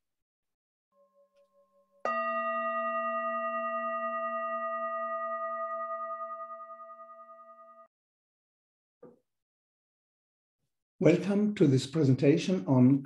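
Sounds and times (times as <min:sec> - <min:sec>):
bell struck and ringing: 0:02.1 - 0:07.9.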